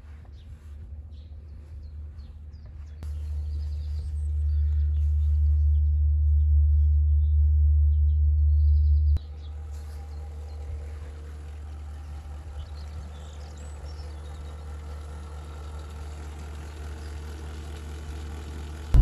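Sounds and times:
small birds chirping: 0.0s - 19.0s
low rumble: 0.8s - 9.2s.

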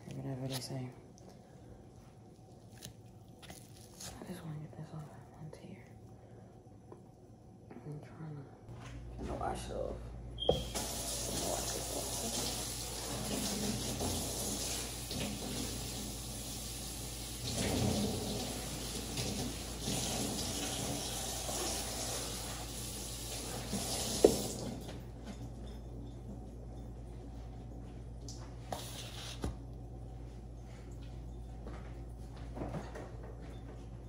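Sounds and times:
faucet water splashing on hands: 17.4s - 24.8s.

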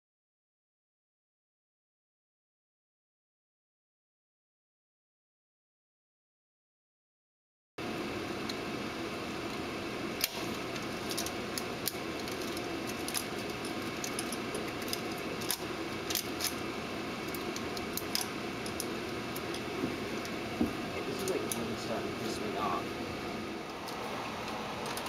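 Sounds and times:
machinery hum: 7.8s - 25.0s
metallic clicks of film projector: 10.2s - 16.6s, 17.3s - 19.6s.

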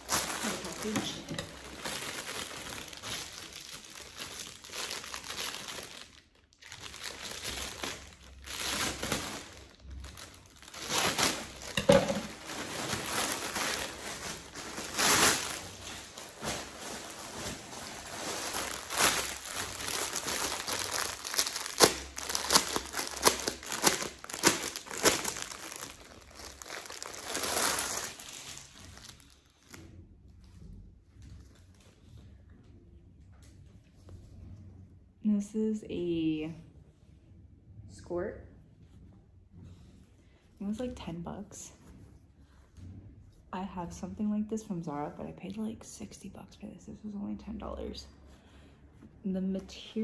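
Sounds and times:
plastic packaging crinkling: 0.0s - 29.8s.

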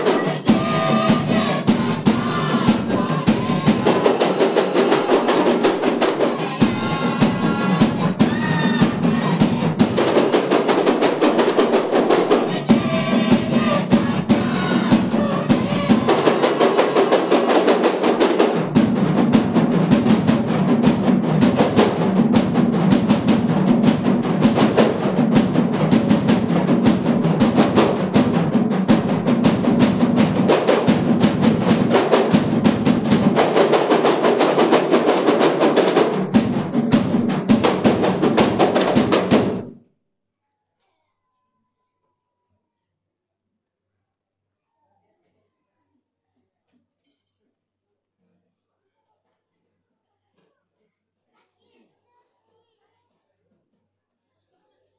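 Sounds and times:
frame drums beaten by hand: 0.0s - 39.7s.

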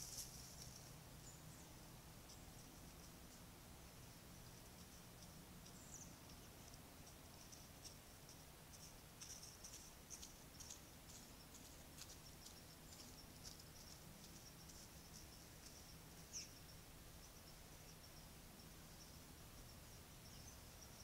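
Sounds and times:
faint high-pitched ticks and chirps: 0.0s - 21.0s
faint outdoor hiss: 0.0s - 21.0s.

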